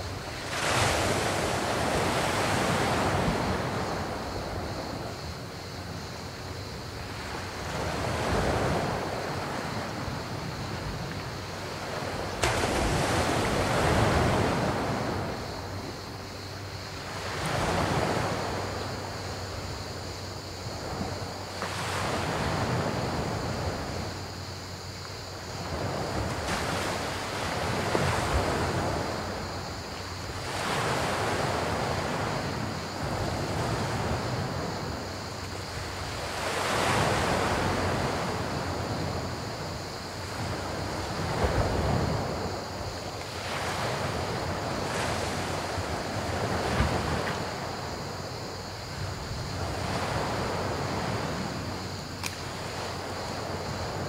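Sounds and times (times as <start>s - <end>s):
crickets chirring: 0.0s - 54.0s
sharp click: 52.2s - 52.4s.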